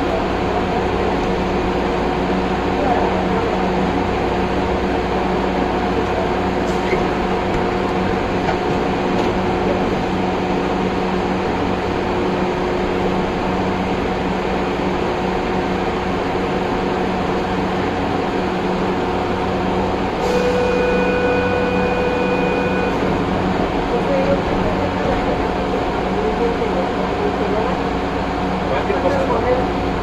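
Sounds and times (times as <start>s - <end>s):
rail car equipment hum: 0.0s - 30.0s
steady higher tone: 20.2s - 23.1s.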